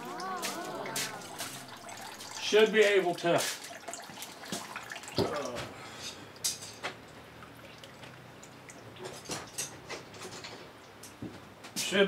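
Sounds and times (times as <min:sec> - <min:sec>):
murmur of voice: 0:00.0 - 0:01.8.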